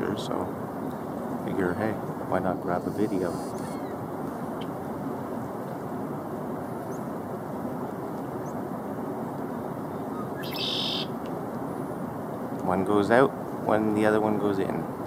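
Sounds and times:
outdoor background noise: 0.0 - 15.0
chickadee high chirps: 2.5 - 4.0, 9.9 - 11.2.

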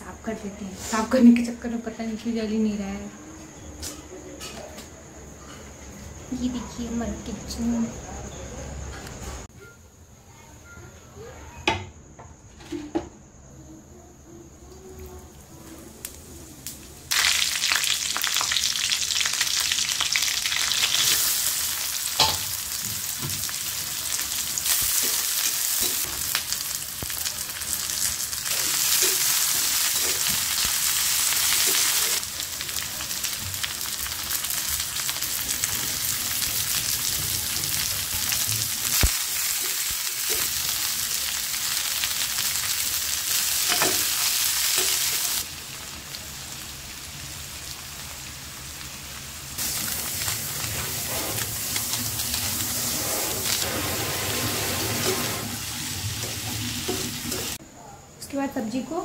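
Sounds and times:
vegetables sizzling in oil: 0.2 - 3.1, 15.1 - 57.6.

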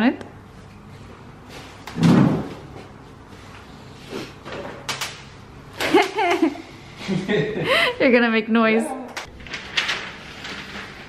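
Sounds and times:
bubble wrap rustling: 9.3 - 11.0.

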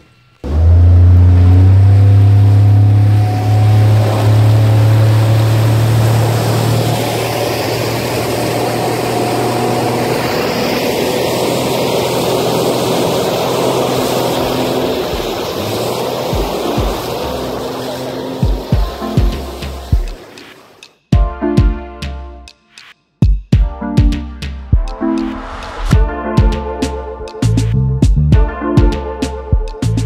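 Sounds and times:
speedboat engine drone: 0.0 - 20.8
water rushing along hull: 0.4 - 20.8.

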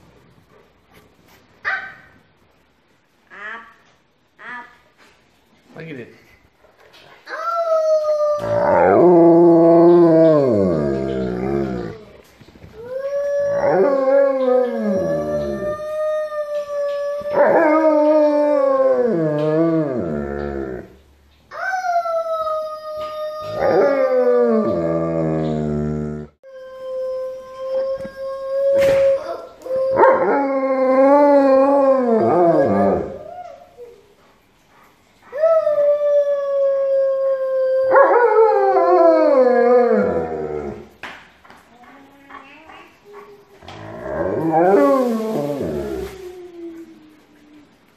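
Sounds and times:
dog howling: 7.4 - 21.0, 21.6 - 33.6, 35.4 - 40.9, 43.6 - 47.7.

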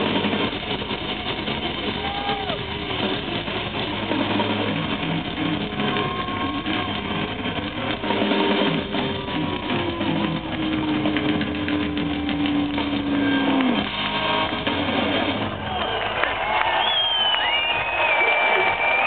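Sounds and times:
electric guitar: 0.0 - 15.6
heavy metal band playing live: 0.0 - 15.7
drums: 0.0 - 19.0.

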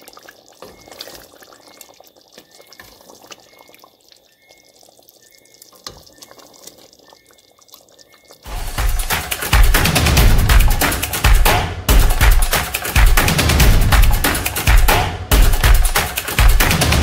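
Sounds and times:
spoon stirring thick gravy: 0.0 - 8.9.

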